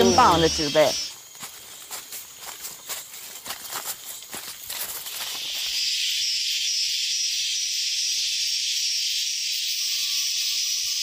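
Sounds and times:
high insect chorus: 0:00.0 - 0:11.0
thin steady whistling tone: 0:05.2 - 0:11.0.

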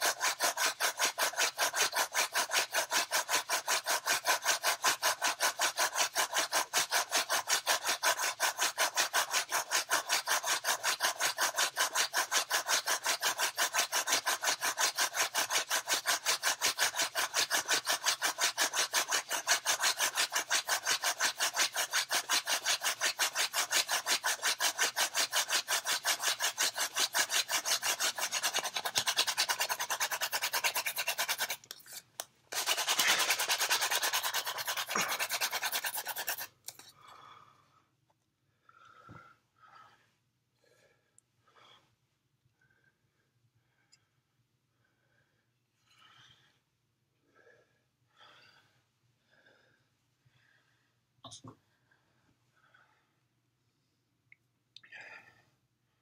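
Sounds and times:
hand drill rasping on wood: 0:00.0 - 0:37.0.

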